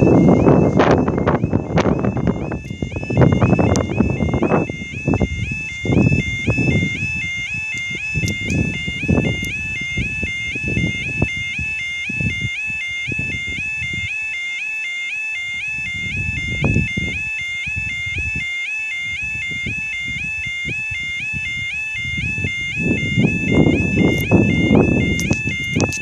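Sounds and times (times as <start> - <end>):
wind buffeting microphone: 0.0 - 14.4, 15.3 - 26.0
level crossing warning alarm: 0.0 - 26.0.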